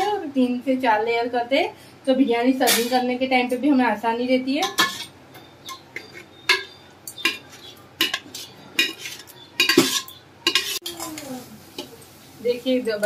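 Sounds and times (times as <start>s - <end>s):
metal spoon clinking against pot: 4.6s - 11.9s.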